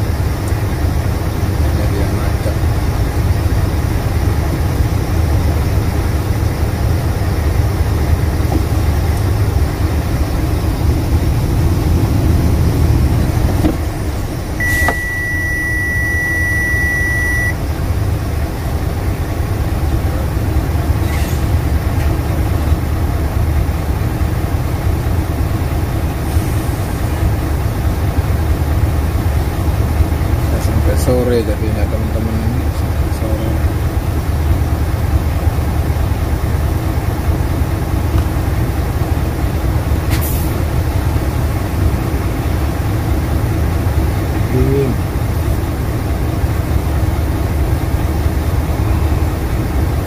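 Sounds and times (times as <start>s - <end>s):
truck engine and road rumble: 0.0s - 50.0s
high steady beep: 14.6s - 17.6s.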